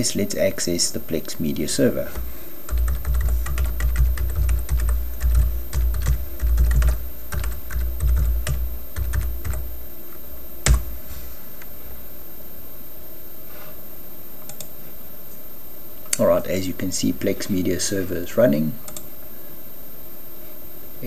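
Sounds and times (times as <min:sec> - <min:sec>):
keyboard typing: 0:02.1 - 0:09.8, 0:10.6 - 0:11.0.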